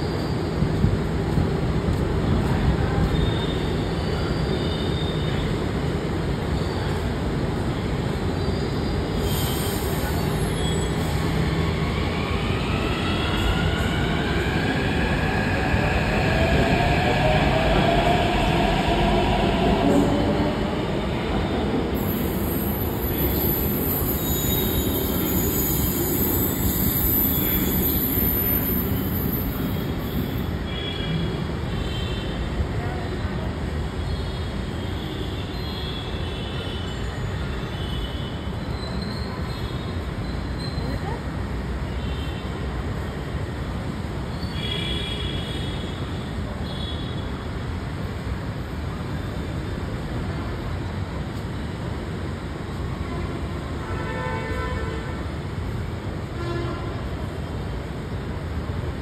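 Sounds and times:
train wheels rumbling on rail: 0.1 - 33.9.

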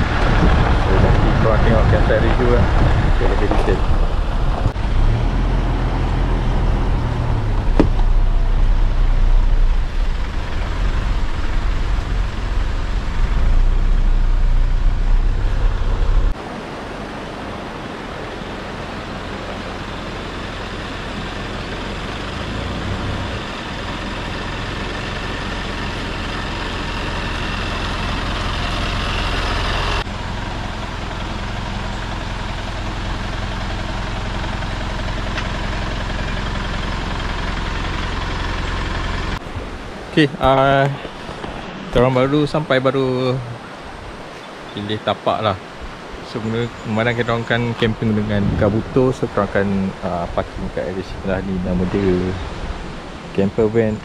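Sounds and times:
car rumbling over gravel: 0.0 - 16.7, 17.4 - 42.7, 46.0 - 54.0
car moving across dirt: 0.0 - 17.6, 18.6 - 42.8.

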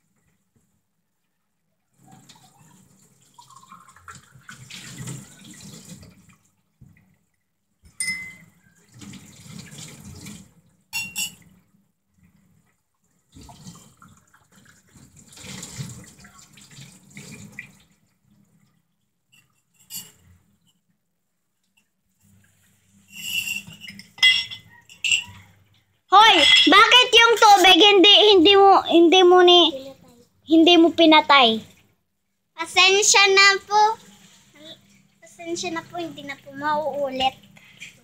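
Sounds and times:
tap water running into a sink: 2.0 - 8.0, 8.6 - 19.8.

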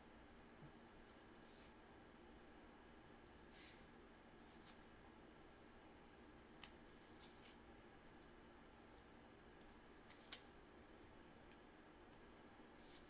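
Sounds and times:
cardboard cards flipped by hand: 6.6 - 7.6, 10.0 - 10.5.

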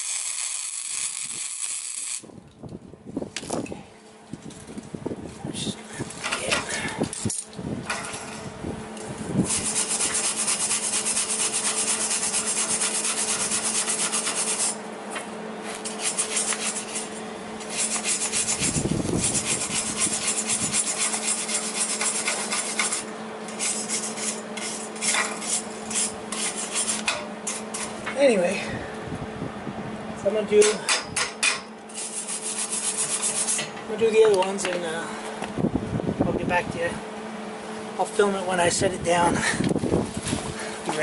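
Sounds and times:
welder arc crackling: 0.0 - 2.3, 9.0 - 14.8.

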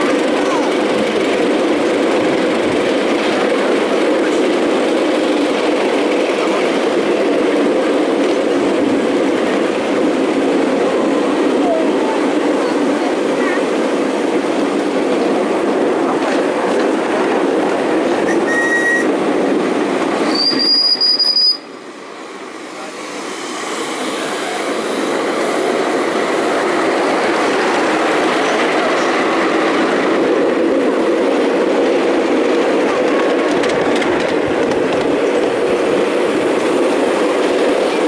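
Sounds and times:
small train wheels rumbling on rail: 0.0 - 38.0
high wheel squeal: 18.3 - 19.1, 20.2 - 21.8.

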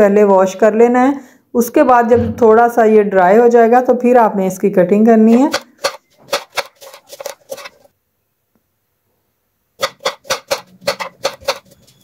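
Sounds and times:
knife chopping on cutting board: 5.5 - 7.6, 9.8 - 12.0.

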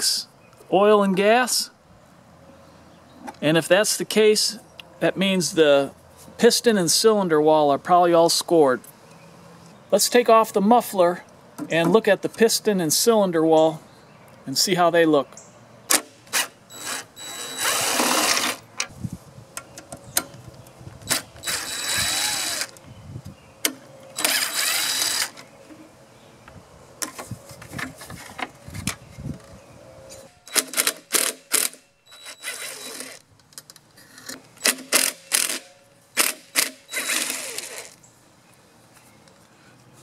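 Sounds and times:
cordless drill running: 16.7 - 18.6, 21.4 - 22.7, 24.2 - 25.4, 32.1 - 33.2, 36.2 - 38.0.

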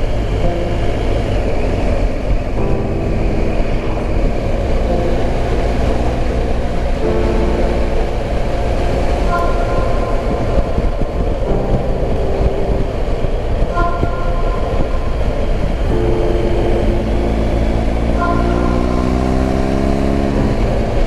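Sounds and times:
wind rush: 0.0 - 21.0
motorcycle engine: 15.1 - 21.0.

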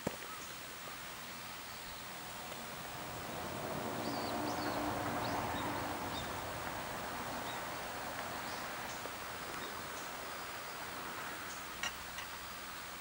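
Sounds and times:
steady rustling hiss: 0.0 - 13.0.

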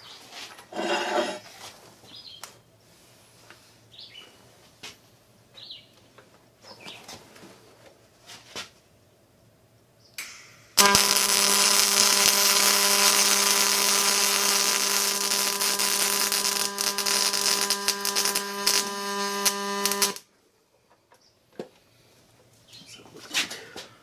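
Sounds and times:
welding arc crackling hiss: 10.2 - 20.2.

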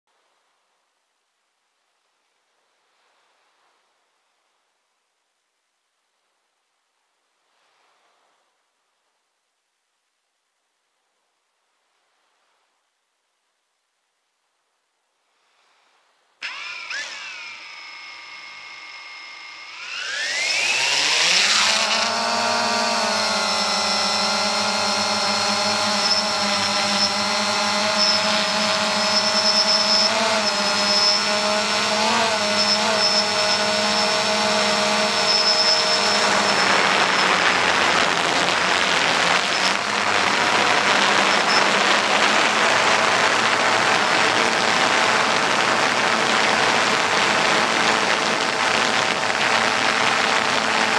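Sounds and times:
drone motors whining: 16.4 - 50.9.

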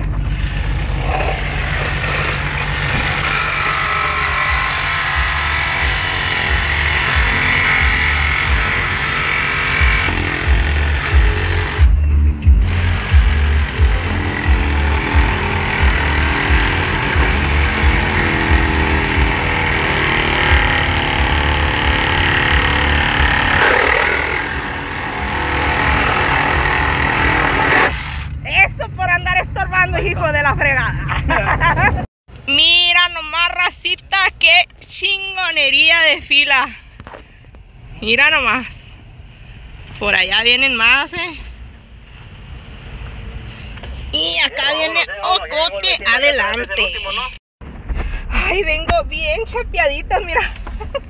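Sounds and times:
reciprocating saw running: 0.0 - 12.0, 12.6 - 28.4.

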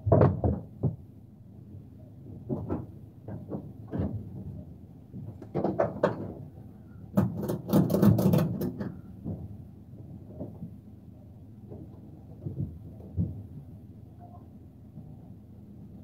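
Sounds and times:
objects knocking and rattling: 0.0 - 1.0, 2.4 - 6.5, 7.1 - 9.6.

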